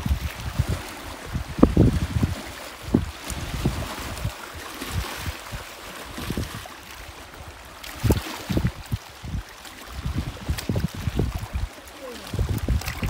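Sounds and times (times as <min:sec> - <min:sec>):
waves splashing on rocky shore: 0:00.0 - 0:13.0.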